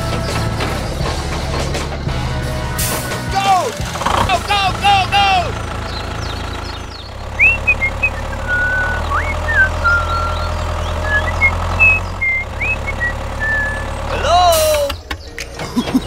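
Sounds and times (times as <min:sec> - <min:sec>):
tractor engine running: 0:00.0 - 0:16.0
high chirps and whistles: 0:06.2 - 0:16.0.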